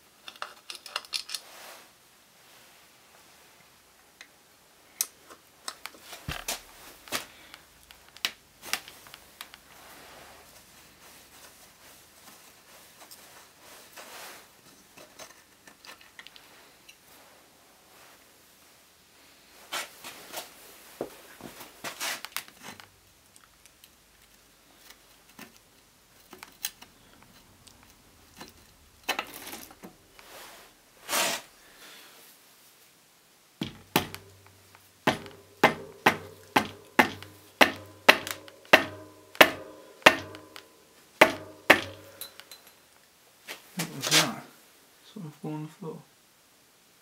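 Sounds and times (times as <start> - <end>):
tool clicks and rattles: 0.2 - 1.4
hammer knocks on bike frame: 33.6 - 34.3, 35.1 - 40.6, 41.2 - 42.2.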